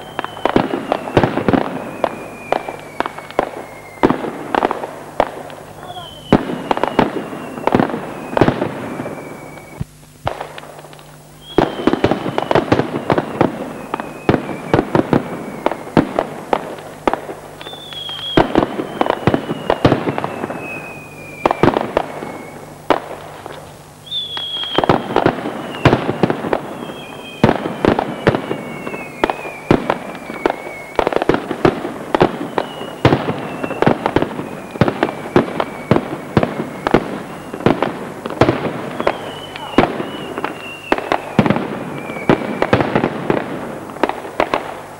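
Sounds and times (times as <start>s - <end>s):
high descending whistle: 0.0s - 4.2s, 5.8s - 9.9s, 11.4s - 16.0s, 17.6s - 22.7s, 24.0s - 31.3s, 32.3s - 37.7s, 39.0s - 42.8s
firecrackers exploding: 0.0s - 44.9s.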